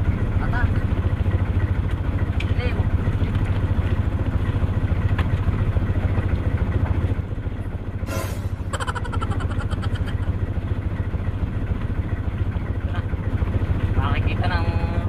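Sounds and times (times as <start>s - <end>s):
boat engine chugging: 0.0s - 15.0s
brief hiss: 8.1s - 8.6s.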